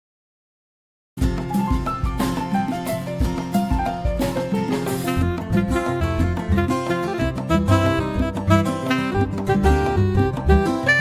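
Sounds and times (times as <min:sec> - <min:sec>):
steady drum beat: 0:01.2 - 0:08.6
plucked guitar: 0:01.2 - 0:11.0.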